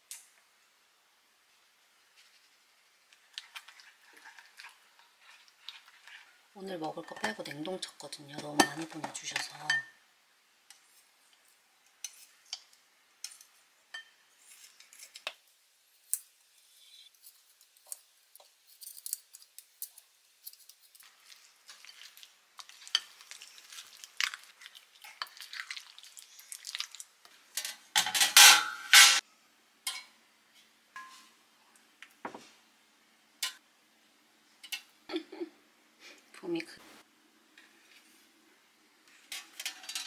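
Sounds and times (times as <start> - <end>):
wooden spoon mixing meat: 3.1 - 9.2, 21.0 - 27.0
kitchen utensils clattering: 27.6 - 29.2, 39.3 - 40.0.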